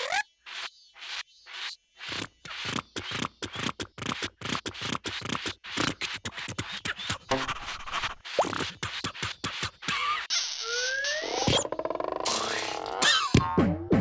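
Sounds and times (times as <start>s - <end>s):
plastic straw scratchy scraping: 2.0s - 10.3s.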